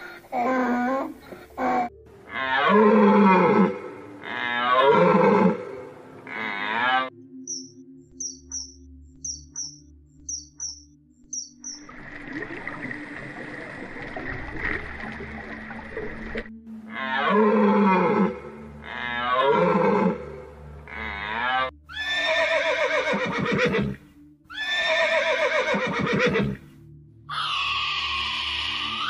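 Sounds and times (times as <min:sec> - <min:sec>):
horse whinnies: 0:20.9 - 0:26.6, 0:27.3 - 0:29.0.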